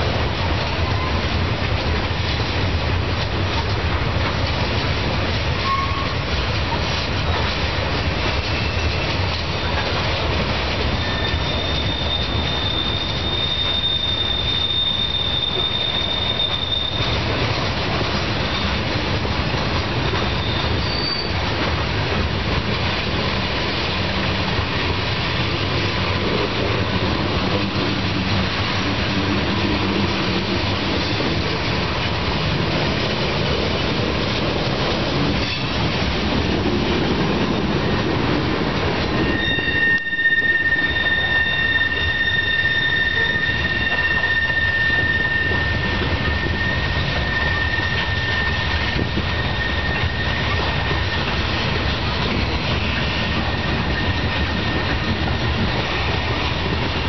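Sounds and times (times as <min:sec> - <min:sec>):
train wheels rumbling on rail: 0:00.0 - 0:57.0
high-pitched wheel squeal: 0:05.6 - 0:06.2, 0:10.9 - 0:17.3, 0:20.2 - 0:21.4, 0:39.2 - 0:51.3.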